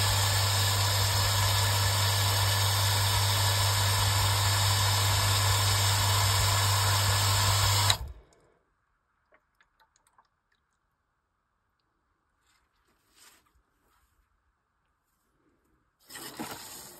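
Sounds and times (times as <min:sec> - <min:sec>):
water pump humming: 0:00.0 - 0:08.2.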